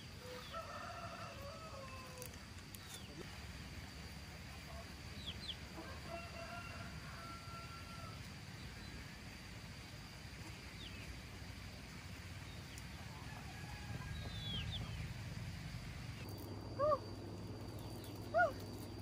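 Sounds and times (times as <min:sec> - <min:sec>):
steady low hum: 0:00.0 - 0:19.0
faint bird chirps: 0:16.0 - 0:19.0.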